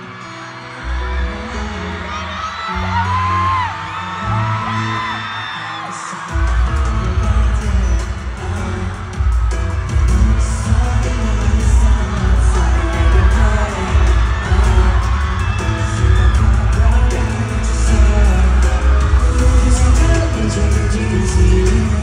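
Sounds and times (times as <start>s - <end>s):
heavy bass beat: 6.3s - 22.0s
group singing: 6.4s - 22.0s.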